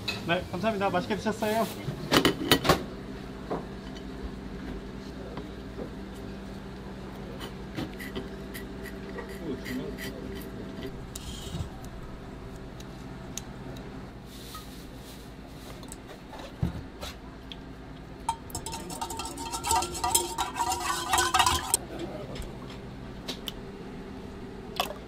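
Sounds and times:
whisk clinking against metal bowl: 0:18.3 - 0:21.8.

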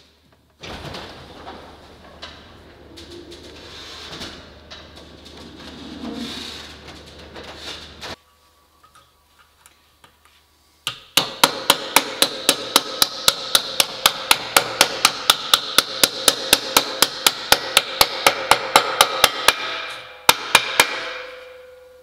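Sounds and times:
hammer striking metal ringing: 0:10.9 - 0:22.0.

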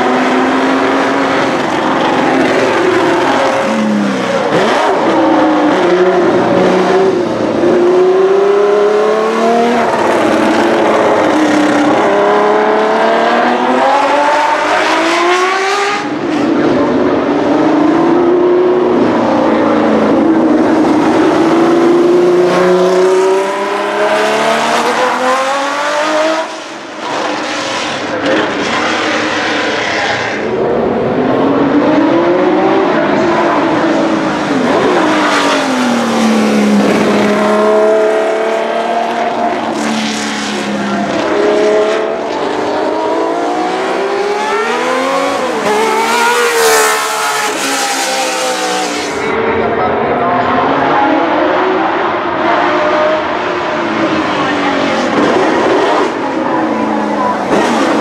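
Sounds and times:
racing car engine at high revs: 0:00.0 - 0:58.0.

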